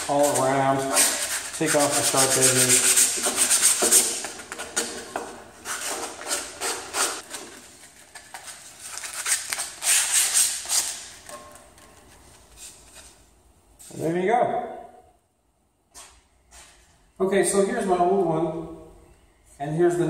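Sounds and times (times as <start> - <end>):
sandpaper rubbing on wood: 0.0 - 4.9, 5.6 - 7.2.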